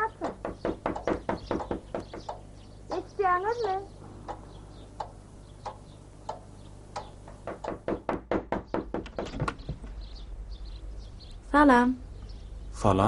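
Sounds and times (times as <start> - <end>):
knocks on a wooden door: 0.0 - 3.2, 7.0 - 9.9.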